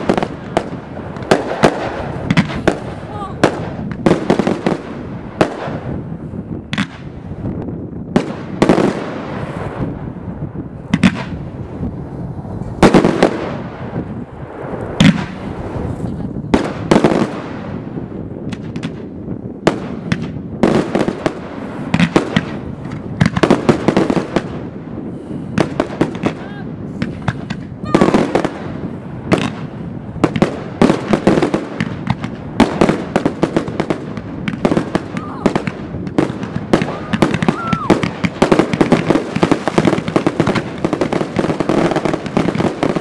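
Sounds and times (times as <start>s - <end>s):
firework shells bursting: 0.0s - 7.6s, 16.6s - 43.0s
continuous background noise: 0.0s - 43.0s.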